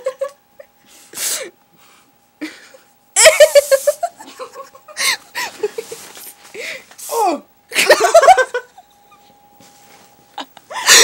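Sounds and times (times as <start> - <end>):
young people laughing: 3.2 - 6.0, 7.7 - 8.8.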